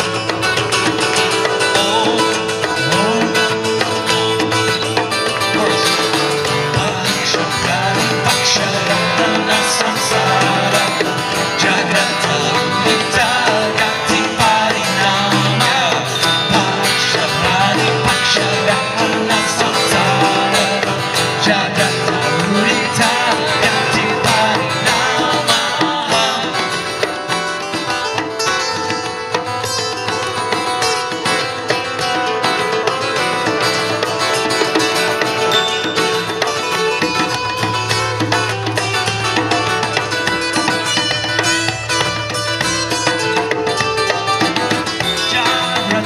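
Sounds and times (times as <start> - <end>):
hand drum beat: 0.0 - 46.0
strummed acoustic guitars: 0.0 - 46.0
person singing: 1.3 - 27.7, 43.0 - 46.0.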